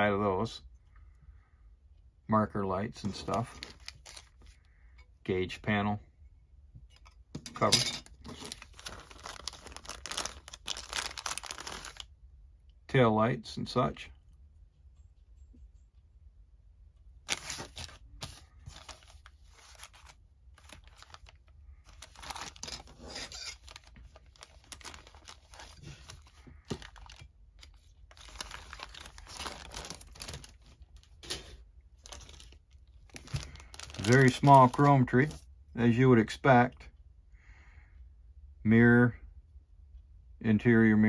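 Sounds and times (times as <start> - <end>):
plastic bag crinkling: 3.1 - 4.6, 8.0 - 12.1, 17.2 - 35.4.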